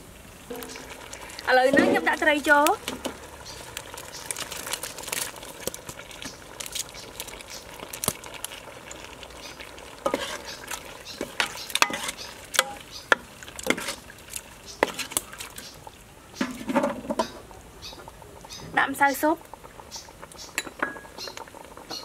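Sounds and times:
ladle clinking against metal pot: 0.5 - 2.3, 11.3 - 13.8
ladle stirring thick sauce: 0.5 - 17.0.

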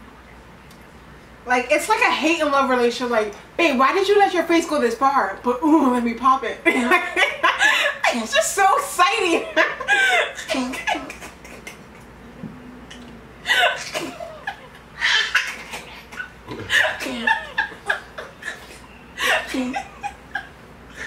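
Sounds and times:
woman laughing: 6.6 - 12.1, 12.9 - 21.0.

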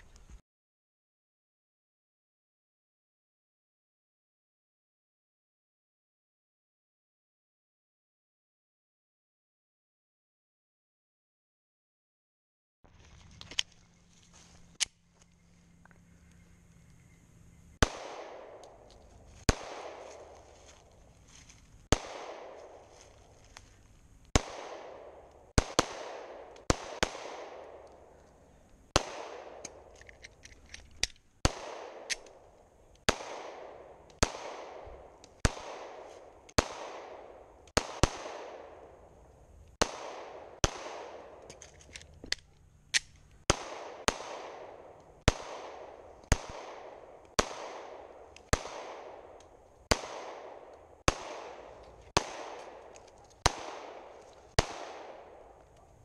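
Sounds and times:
pistol shots with echo: 17.8 - 20.5, 21.9 - 23.0, 24.4 - 28.2, 28.9 - 29.9, 31.4 - 32.5, 33.1 - 39.1, 39.8 - 41.6, 43.5 - 55.6.

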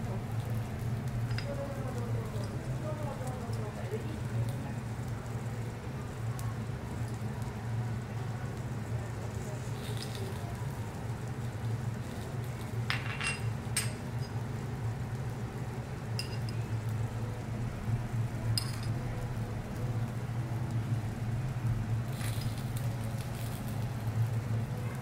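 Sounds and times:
glassware clinking: 12.9 - 14.4, 16.2 - 16.6, 18.6 - 18.9.

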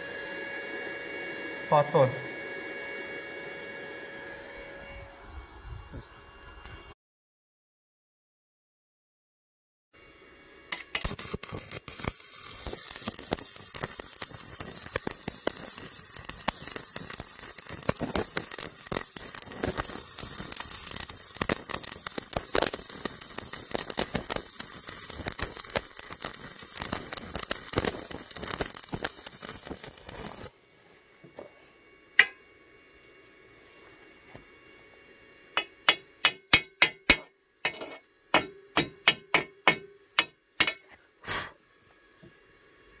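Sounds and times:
welding arc crackling: 10.7 - 30.6.

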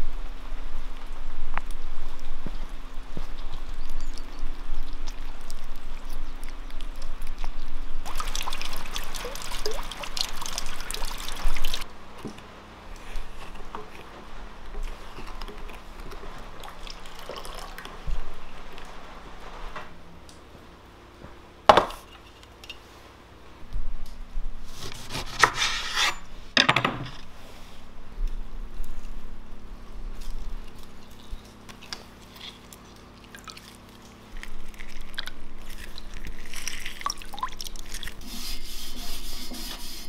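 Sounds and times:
juice pouring into glass bowl: 8.0 - 11.8, 15.3 - 18.1, 32.5 - 38.3.

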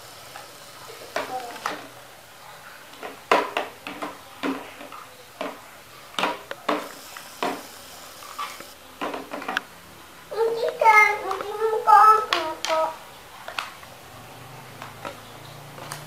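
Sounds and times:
plastic toys clicking and knocking: 2.9 - 5.6, 10.6 - 13.8.

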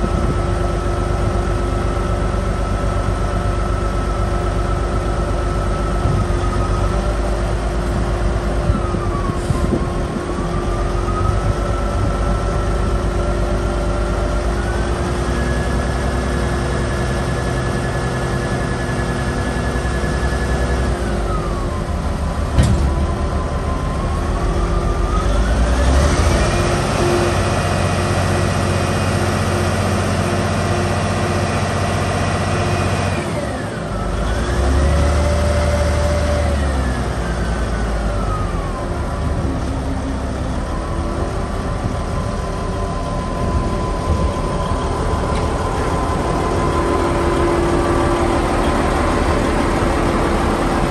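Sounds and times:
diesel engine revving: 0.0 - 50.9
hydraulic whine: 0.0 - 50.9.

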